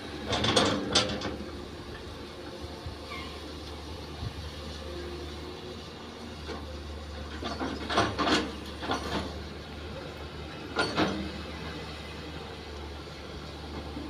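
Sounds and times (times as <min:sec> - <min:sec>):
excavator engine drone: 0:00.0 - 0:14.0
metallic clanks and scrapes: 0:00.3 - 0:01.4, 0:07.3 - 0:09.5, 0:10.7 - 0:11.4.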